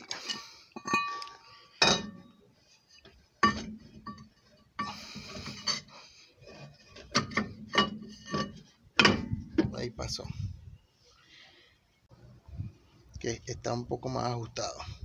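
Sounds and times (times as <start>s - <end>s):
metallic knocks and clunks: 1.8s - 2.3s, 3.4s - 5.9s, 6.5s - 9.9s.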